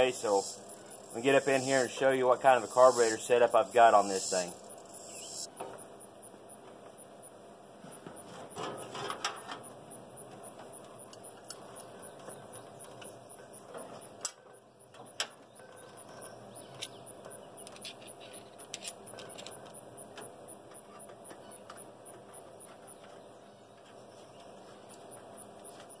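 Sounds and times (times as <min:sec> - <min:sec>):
metallic clicks and rattles: 0:13.7 - 0:23.2.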